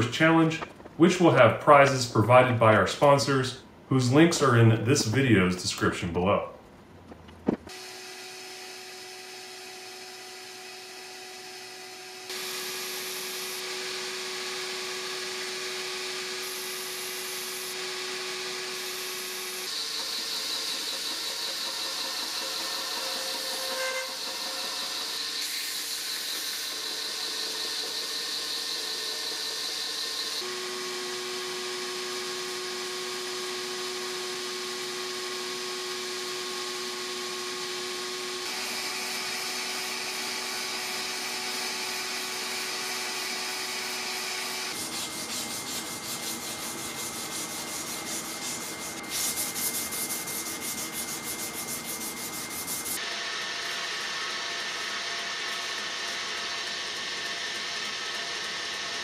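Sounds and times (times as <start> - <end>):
belt grinder grinding blade: 12.3 - 31.6, 38.4 - 59.0
sandpaper rasping on blade: 44.1 - 53.0.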